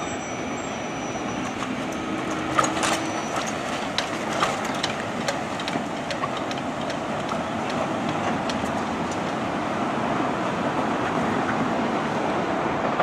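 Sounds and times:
electric train running: 0:00.0 - 0:09.8.

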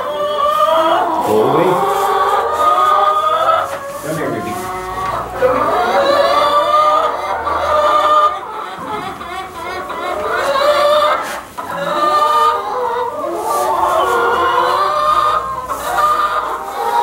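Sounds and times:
hens clucking and squawking: 0:00.0 - 0:17.0.

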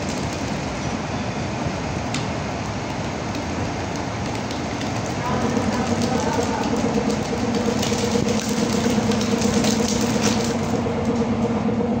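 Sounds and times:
machine mechanical hum: 0:00.0 - 0:12.0
rubber strips ticking and crackling: 0:02.0 - 0:11.4.

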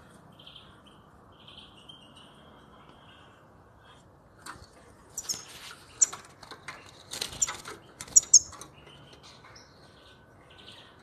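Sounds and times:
bird chirps: 0:05.1 - 0:06.2, 0:06.8 - 0:11.0
wing fluttering: 0:05.1 - 0:08.7.

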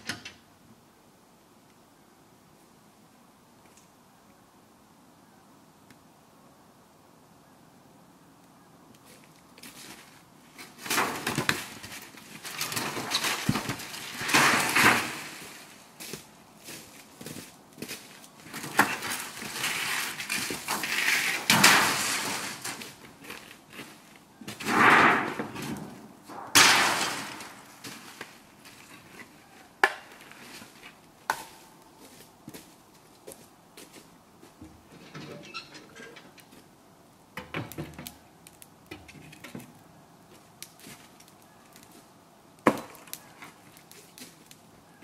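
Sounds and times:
tarp rustling: 0:09.7 - 0:29.2
footsteps on frozen leaves: 0:15.0 - 0:21.5.

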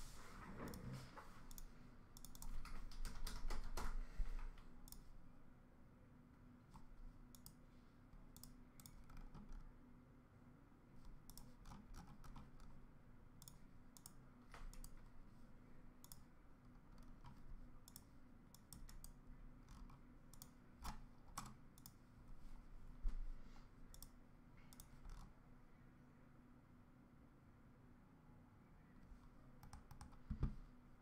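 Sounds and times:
low steady hum: 0:00.0 - 0:31.0
keyboard and mouse clicks: 0:00.6 - 0:05.1, 0:06.7 - 0:07.6, 0:08.2 - 0:09.7, 0:11.0 - 0:12.8, 0:13.4 - 0:15.1, 0:16.0 - 0:22.0, 0:23.9 - 0:25.3, 0:29.6 - 0:30.6.

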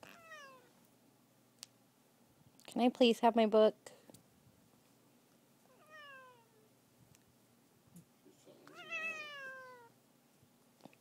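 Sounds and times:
cat meowing: 0:00.0 - 0:00.7, 0:05.7 - 0:06.6, 0:08.7 - 0:10.0.

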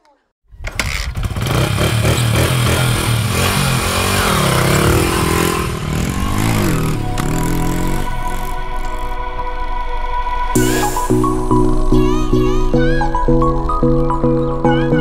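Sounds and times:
motorcycle engine revving: 0:00.6 - 0:10.7.

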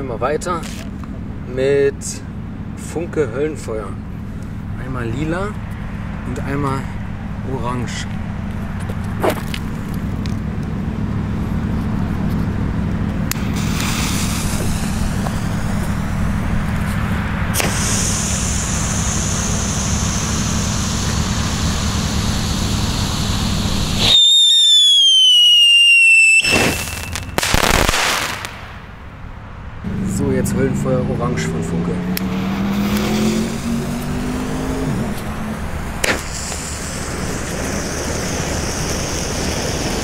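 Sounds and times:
firework crackling: 0:13.3 - 0:29.0, 0:32.2 - 0:34.0, 0:35.1 - 0:40.0
firework hissing: 0:13.3 - 0:29.0, 0:32.2 - 0:40.0
falling firework whistle: 0:17.5 - 0:28.6, 0:36.0 - 0:40.0.

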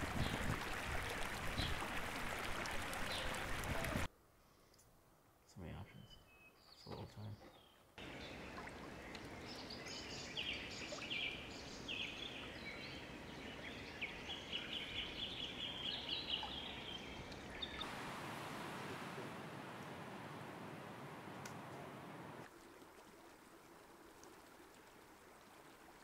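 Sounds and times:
songbird chirping: 0:05.5 - 0:22.4
steady outdoor hiss: 0:08.0 - 0:26.0.

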